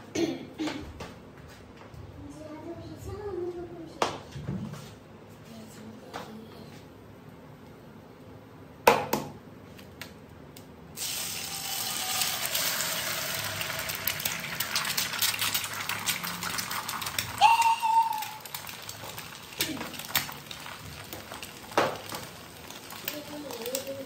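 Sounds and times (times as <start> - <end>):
egg sizzling in hot oil: 11.0 - 24.0.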